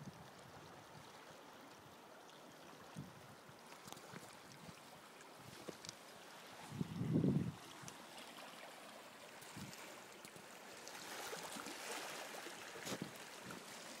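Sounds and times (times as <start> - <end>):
sea water washing over rocks: 3.7 - 14.0.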